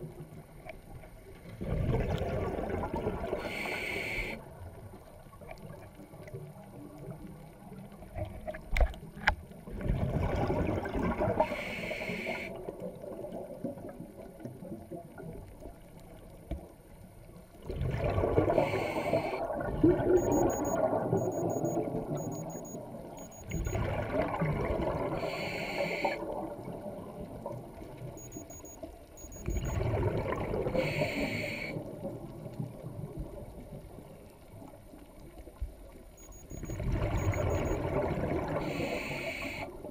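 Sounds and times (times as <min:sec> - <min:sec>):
bubbling rumble: 0:01.6 - 0:03.3, 0:17.6 - 0:18.6, 0:23.8 - 0:25.1
sharp clicks: 0:36.2 - 0:37.8.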